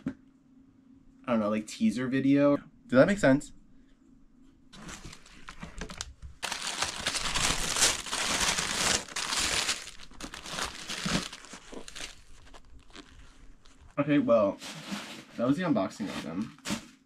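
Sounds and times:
paper packaging crumpling: 0:04.8 - 0:14.0.

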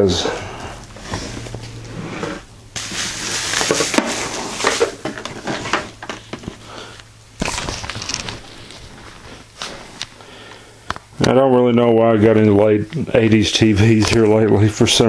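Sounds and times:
packaging crackling and rustling: 0:02.8 - 0:06.6, 0:07.4 - 0:10.2.

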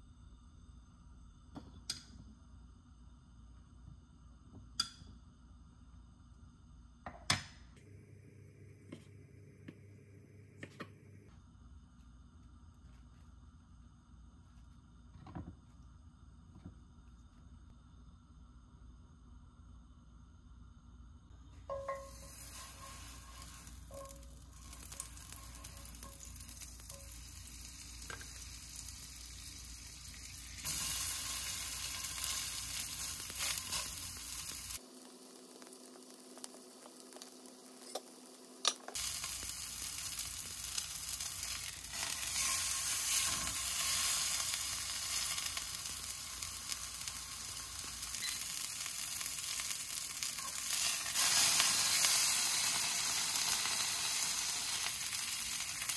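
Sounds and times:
food sizzling in a pan: 0:21.5 - 0:55.9.

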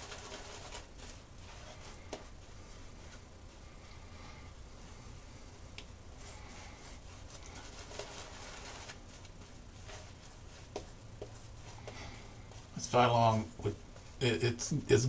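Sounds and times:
shaving brush swirling lather: 0:06.2 - 0:13.4.

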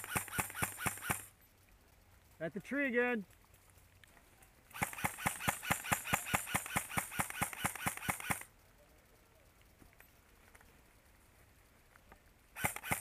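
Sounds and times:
airsoft rifle rapid fire: 0:00.0 - 0:01.3, 0:04.7 - 0:08.5, 0:12.5 - 0:13.0.

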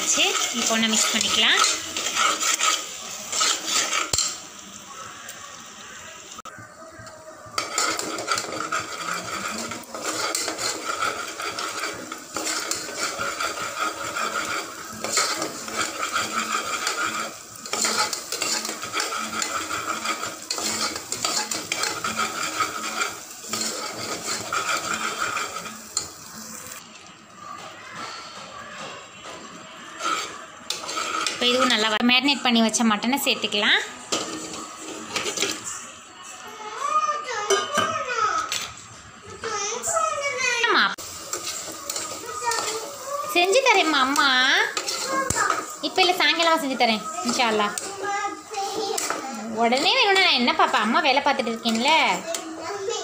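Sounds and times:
ladle scraping a pot: 0:00.0 - 0:04.4, 0:07.6 - 0:26.8, 0:29.2 - 0:32.0, 0:34.1 - 0:35.8, 0:41.0 - 0:52.3
paste sizzling in oil: 0:00.0 - 0:28.0, 0:29.2 - 0:37.4, 0:39.4 - 0:53.0.

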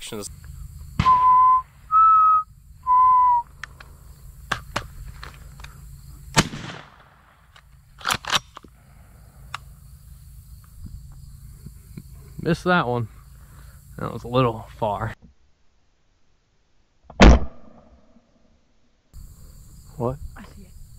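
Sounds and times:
shotgun shot: 0:01.0 - 0:01.5, 0:06.3 - 0:07.4, 0:17.2 - 0:17.9
whistle-like beeps: 0:01.0 - 0:03.5.

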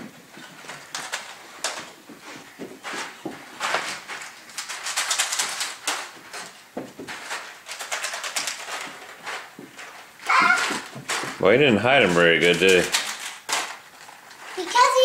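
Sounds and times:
rustling and scuffing: 0:00.0 - 0:04.4.

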